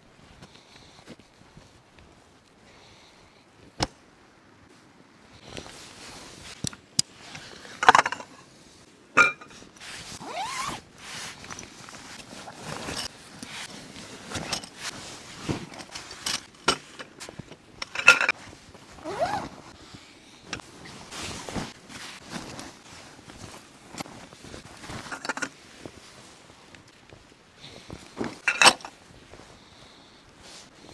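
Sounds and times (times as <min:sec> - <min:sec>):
canvas rustling: 0:09.6 - 0:17.5, 0:18.3 - 0:30.9
zipper: 0:10.0 - 0:11.5, 0:18.9 - 0:19.6.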